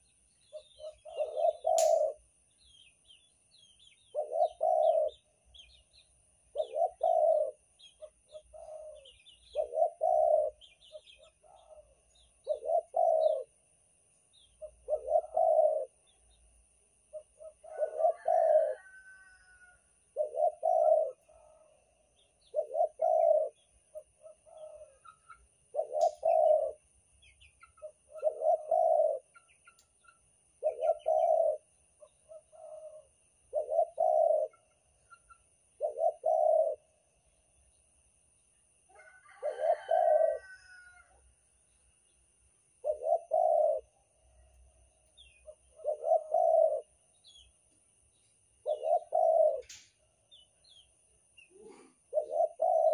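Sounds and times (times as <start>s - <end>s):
dove cooing: 0.0s - 2.3s, 4.0s - 5.8s, 6.5s - 13.7s, 14.6s - 16.3s, 17.0s - 26.9s, 27.6s - 29.6s, 30.6s - 37.0s, 38.9s - 41.2s, 42.8s - 44.7s, 45.3s - 47.4s, 48.6s - 52.9s.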